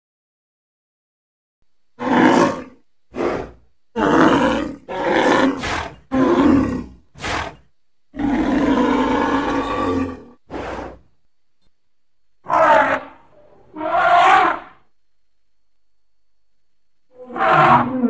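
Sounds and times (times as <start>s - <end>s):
creature roaring: 2.0s - 11.0s, 12.4s - 14.8s, 17.2s - 18.0s.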